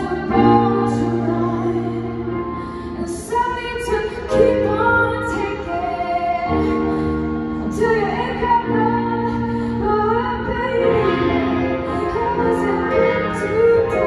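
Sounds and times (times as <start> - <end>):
woman singing over rock band: 7.6 - 14.0.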